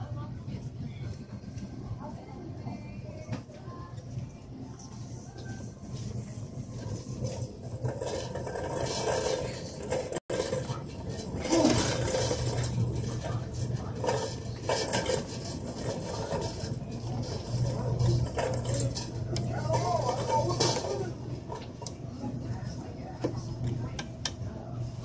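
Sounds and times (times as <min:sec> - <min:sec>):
faint voices: 0:00.0 - 0:25.0
shopping cart rattling: 0:05.6 - 0:21.8.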